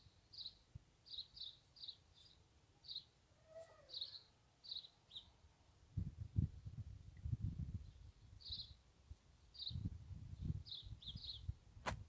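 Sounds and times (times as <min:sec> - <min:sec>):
faint high-pitched chirping: 0:00.0 - 0:05.4, 0:07.7 - 0:08.8.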